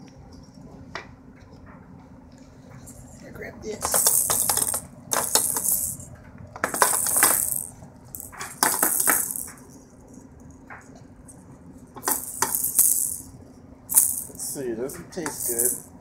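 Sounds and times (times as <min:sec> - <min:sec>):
beads rattling in plastic toys: 0:02.9 - 0:10.3, 0:12.0 - 0:13.3, 0:13.9 - 0:16.0.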